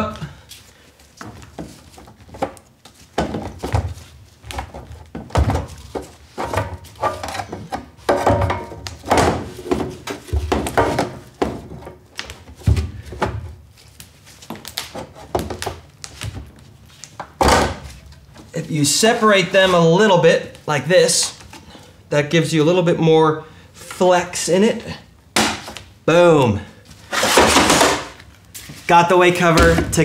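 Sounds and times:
sheet metal clunks and knocks: 0:05.1 - 0:12.0.

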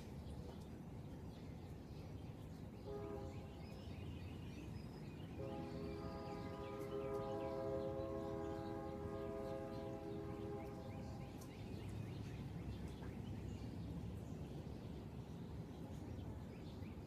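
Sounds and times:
outdoor background noise: 0:00.0 - 0:17.0
horn chord: 0:02.9 - 0:03.5, 0:05.4 - 0:11.2.

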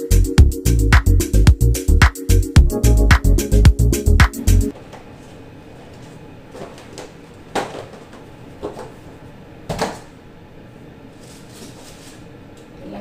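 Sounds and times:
music: 0:00.0 - 0:04.7.

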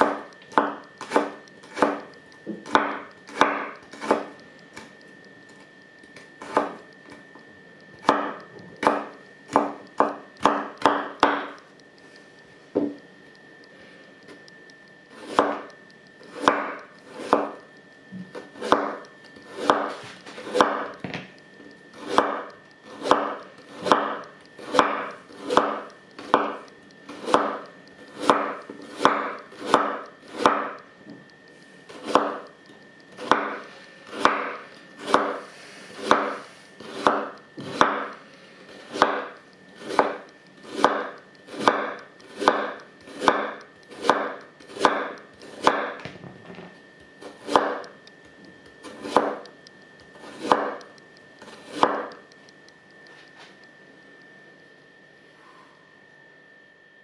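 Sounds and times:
knife chopping on wooden board: 0:00.0 - 0:04.9, 0:06.4 - 0:06.8, 0:08.0 - 0:11.6, 0:15.1 - 0:15.7, 0:16.3 - 0:17.6, 0:18.2 - 0:21.2, 0:22.0 - 0:31.3, 0:31.9 - 0:32.5, 0:33.2 - 0:46.1, 0:47.2 - 0:47.9, 0:48.8 - 0:49.5, 0:50.2 - 0:52.2.

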